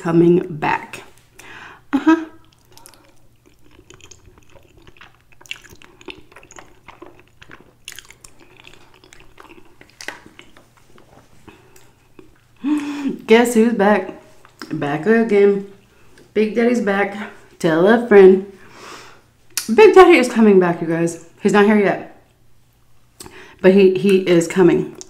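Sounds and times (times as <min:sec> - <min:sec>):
wet chewing mouth sounds: 0:02.4 - 0:12.6.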